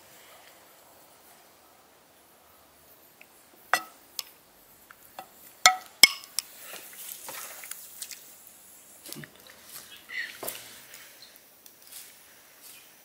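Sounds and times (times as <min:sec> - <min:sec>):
metal spoon clinking on plate: 0:03.8 - 0:04.0.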